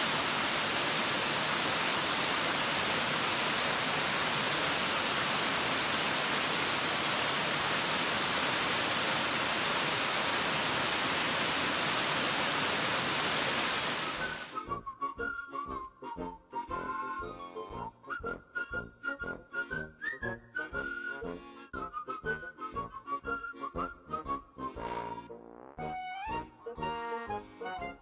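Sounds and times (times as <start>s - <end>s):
water rushing over rocks: 0.0s - 14.5s
whistle-like music notes: 14.1s - 28.0s.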